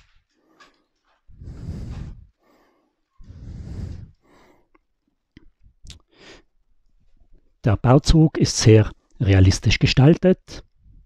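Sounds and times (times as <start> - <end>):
heavy breaths: 0.0 - 5.0.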